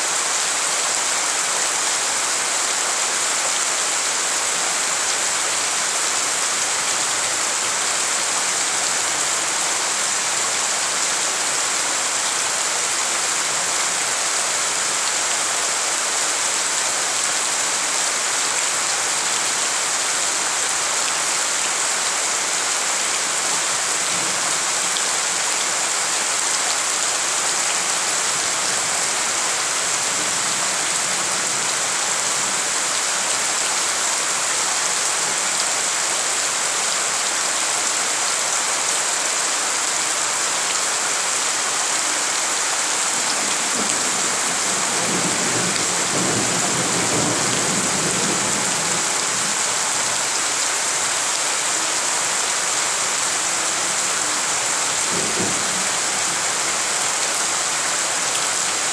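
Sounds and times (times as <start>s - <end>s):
heavy rain on puddles: 0.0s - 58.9s.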